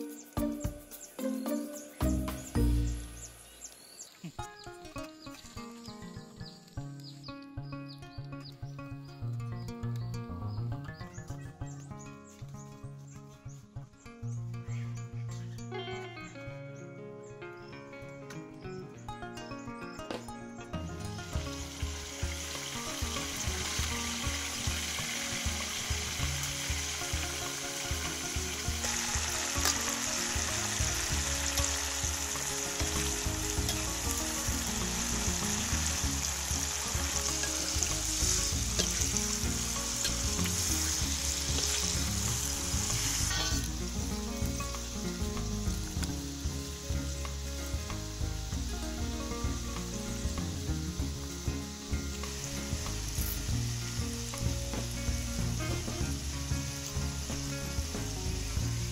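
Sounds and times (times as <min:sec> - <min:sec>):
deep-frying in hot oil sizzling: 0:21.3 - 0:58.9.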